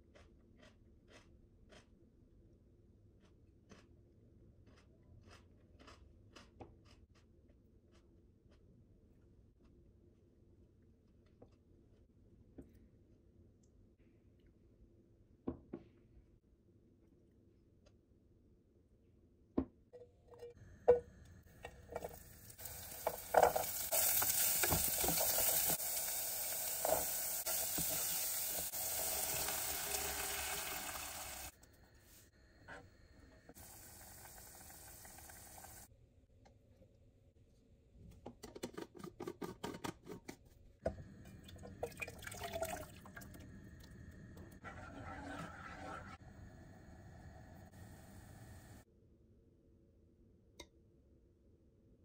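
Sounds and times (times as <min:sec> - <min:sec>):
vegetables sizzling in oil: 0:21.9 - 0:31.5, 0:33.6 - 0:35.9
soup being poured: 0:41.5 - 0:43.3.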